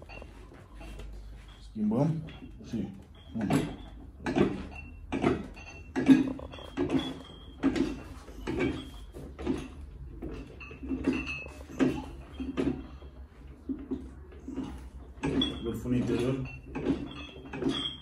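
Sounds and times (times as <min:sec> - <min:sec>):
weight machine creaking and clinking: 0:00.0 - 0:18.0.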